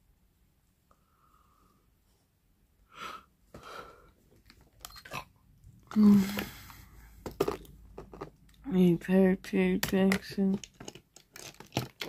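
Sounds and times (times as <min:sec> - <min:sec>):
person yawning: 0:05.9 - 0:06.6.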